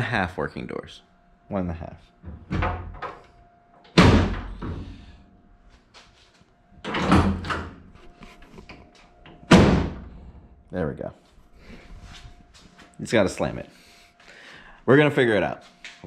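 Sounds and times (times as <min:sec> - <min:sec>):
car door slamming: 0:09.5 - 0:10.2.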